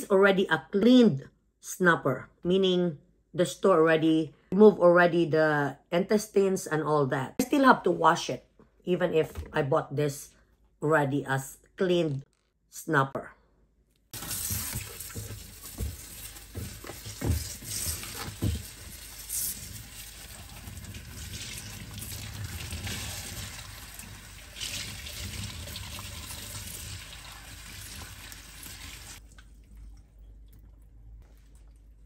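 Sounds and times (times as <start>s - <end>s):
faucet running into a sink: 18.4s - 30.2s.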